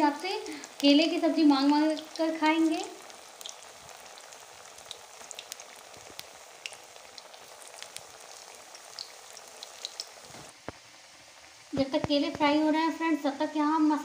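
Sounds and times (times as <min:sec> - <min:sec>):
batter deep-frying in oil: 0:00.0 - 0:14.0
small crackling pops: 0:00.3 - 0:10.8.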